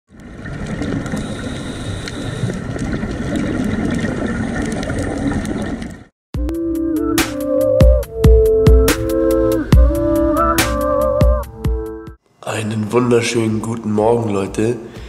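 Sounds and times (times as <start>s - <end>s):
underwater bubbling hiss: 0.9s - 2.8s.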